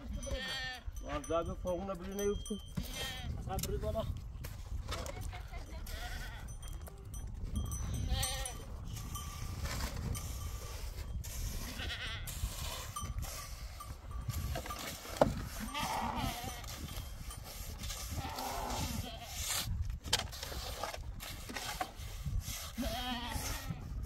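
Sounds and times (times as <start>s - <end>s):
sheep and goats bleating: 0.0s - 1.0s, 2.8s - 3.5s, 5.0s - 8.7s, 11.5s - 12.3s, 15.4s - 16.9s, 18.1s - 19.4s, 22.7s - 24.0s.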